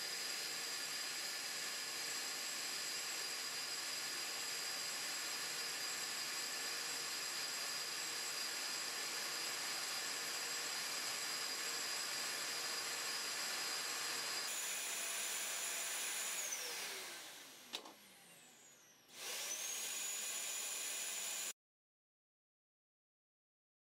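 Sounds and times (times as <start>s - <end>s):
vacuum cleaner motor whine: 4.6s - 21.5s
click: 17.7s - 18.0s.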